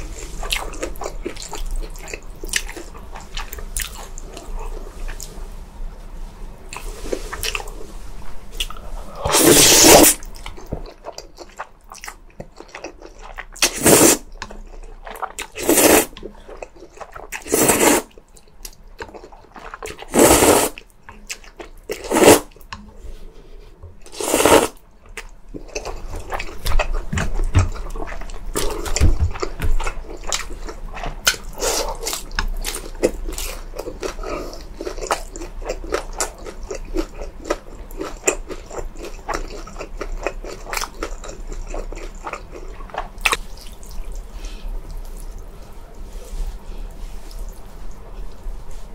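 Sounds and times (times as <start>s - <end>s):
noodles slurped: 9.2s - 10.2s, 15.5s - 16.2s
wet chewing: 25.0s - 46.0s.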